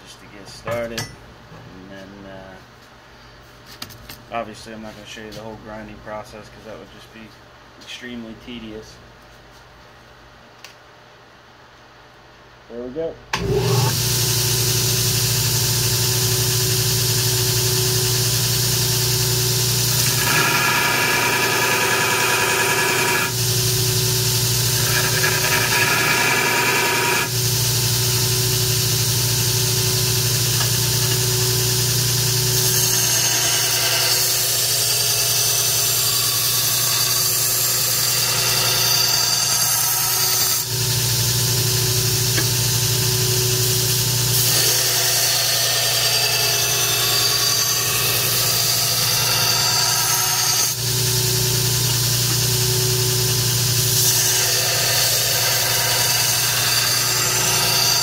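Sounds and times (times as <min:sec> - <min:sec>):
belt grinder motor hum: 0:13.4 - 0:58.0
blade grinding hiss: 0:13.9 - 0:58.0.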